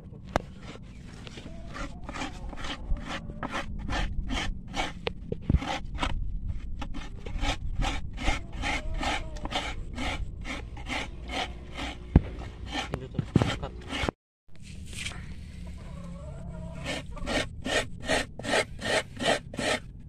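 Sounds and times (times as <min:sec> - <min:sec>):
coconut rasping on serrated blade: 0:01.4 - 0:06.2, 0:06.8 - 0:14.2, 0:16.7 - 0:19.9.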